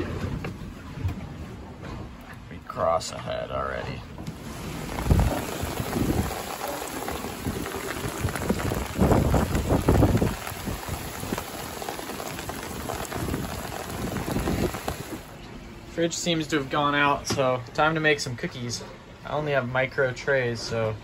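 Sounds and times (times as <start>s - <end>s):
wind gusts buffeting microphone: 4.3s - 15.3s
rain: 4.3s - 15.4s.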